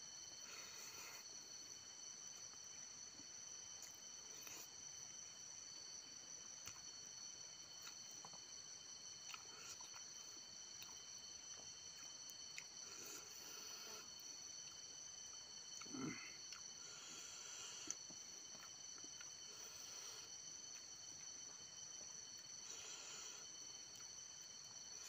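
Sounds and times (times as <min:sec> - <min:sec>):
insects droning: 0:00.0 - 0:25.0
chewing clicks and smacks: 0:06.6 - 0:07.0, 0:09.1 - 0:12.8, 0:17.8 - 0:19.5.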